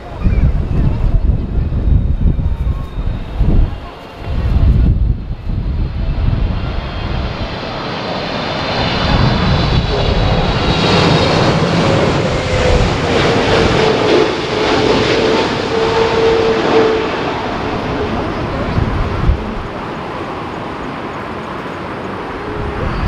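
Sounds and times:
high jet whine: 0:00.0 - 0:23.0
jet engines roaring overhead: 0:00.0 - 0:23.0.

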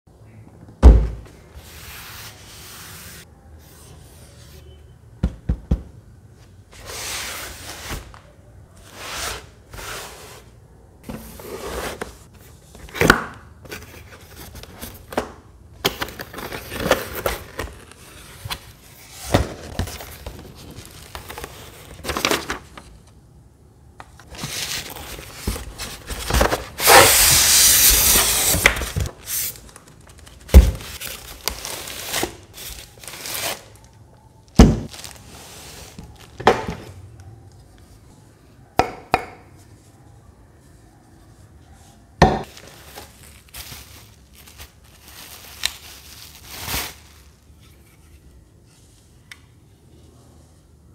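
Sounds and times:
plastic wrapping crinkling: 0:24.3 - 0:34.0, 0:34.8 - 0:36.4, 0:42.4 - 0:47.6.

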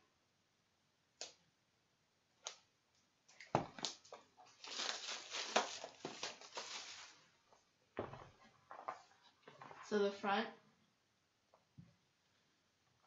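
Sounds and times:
plastic wrapping crinkling: 0:03.3 - 0:07.3.

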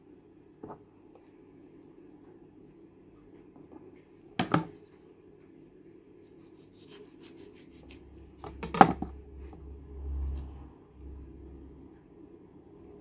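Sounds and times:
low rumble: 0:09.1 - 0:12.0.

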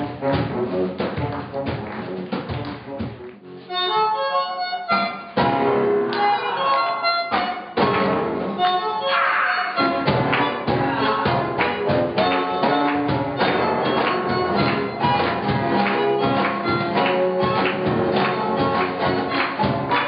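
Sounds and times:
saxophone: 0:00.0 - 0:05.4, 0:08.6 - 0:12.7
guitar: 0:00.0 - 0:20.0
bandoneon: 0:02.8 - 0:20.0
cajon and cymbals beat: 0:04.8 - 0:08.9, 0:09.8 - 0:20.0.

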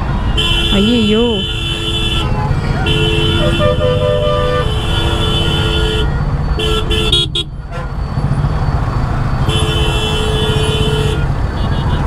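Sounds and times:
vehicle horns blasting: 0:00.2 - 0:08.1, 0:09.2 - 0:12.0.

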